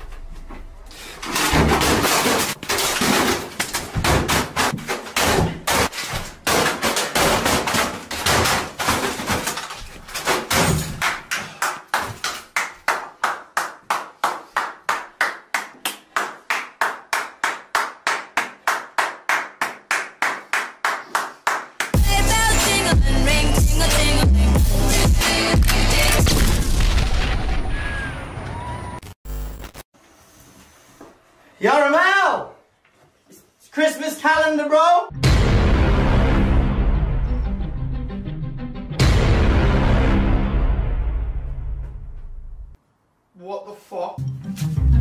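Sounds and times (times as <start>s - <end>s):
hand claps: 11.0s - 22.0s.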